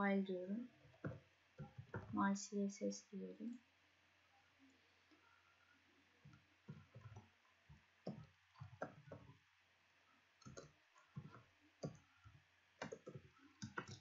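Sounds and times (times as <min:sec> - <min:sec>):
typing on computer keyboard: 0:10.4 - 0:12.0, 0:12.8 - 0:14.0.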